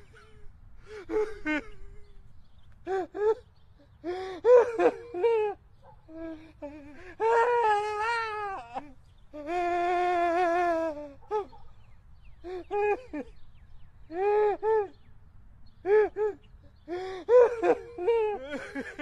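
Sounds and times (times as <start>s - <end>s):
old man wailing: 4.4s - 11.6s.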